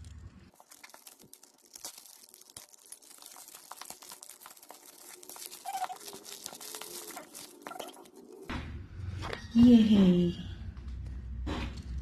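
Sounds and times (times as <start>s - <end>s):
plastic pouch crinkling: 0.5s - 8.5s.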